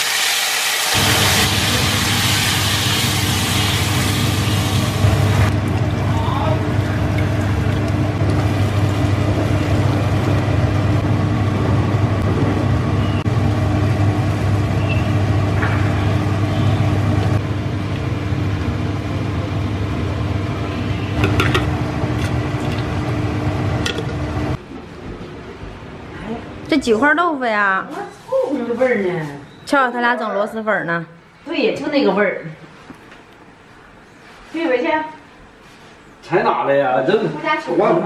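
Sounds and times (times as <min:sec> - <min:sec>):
range hood fan humming: 0:00.1 - 0:30.9
broth bubbling: 0:04.9 - 0:11.8.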